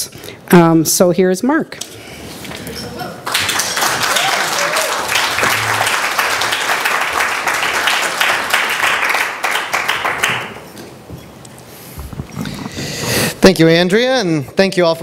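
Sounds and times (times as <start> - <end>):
audience applauding: 3.2 - 10.7.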